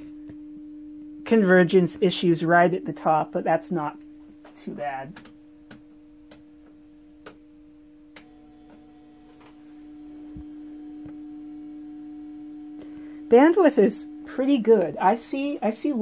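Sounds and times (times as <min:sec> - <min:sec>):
higher steady tones: 0:00.0 - 0:16.0
television low steady tone: 0:00.0 - 0:16.0
sharp clicks: 0:05.1 - 0:06.5.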